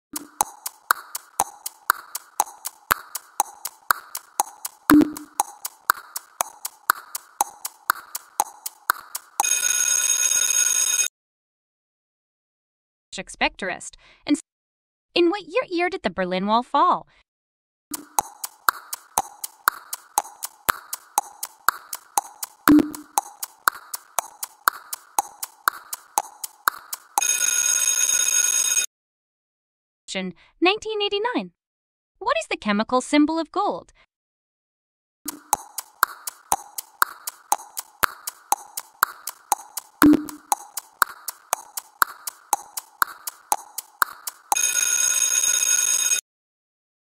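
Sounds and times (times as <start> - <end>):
clock ticking: 0.1 - 11.0, 17.9 - 28.6, 35.3 - 46.2
steady ringing alarm tone: 9.2 - 11.1, 27.2 - 28.9, 44.5 - 46.2.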